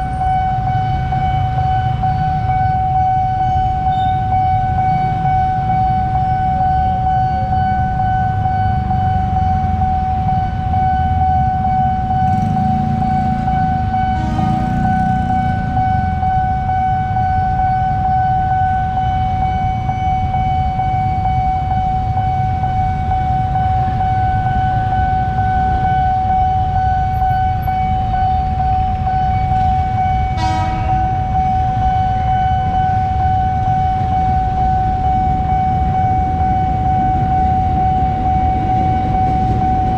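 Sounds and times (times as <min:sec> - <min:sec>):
level crossing warning siren: 0:00.0 - 0:39.9
motorcycle engines idling: 0:11.9 - 0:16.8
horn: 0:30.4 - 0:31.0.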